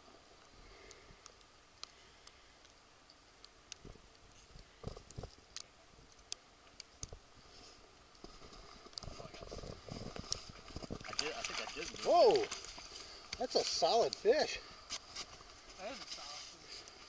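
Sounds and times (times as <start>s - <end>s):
faint irregular clicks: 0.3s - 11.2s.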